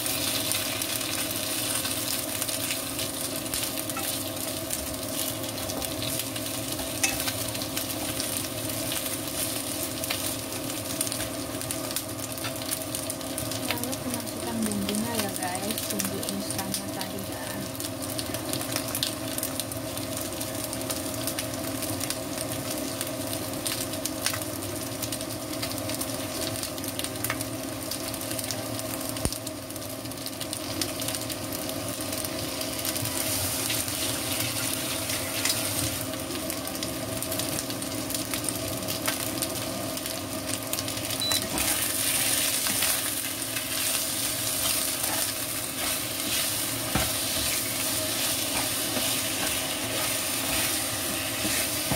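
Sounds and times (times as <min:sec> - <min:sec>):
chicken wings sizzling in oil: 0:00.0 - 0:51.9
steady low hum: 0:25.6 - 0:51.9
spatula stirring in pan: 0:41.5 - 0:51.9.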